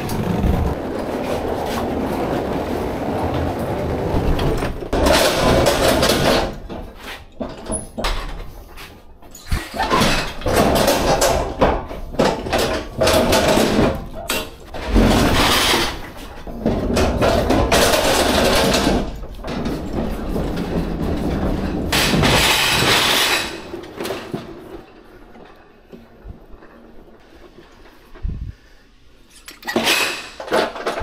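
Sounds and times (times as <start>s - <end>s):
pallet jack rolling and rattling: 0.0s - 28.0s, 29.4s - 31.0s.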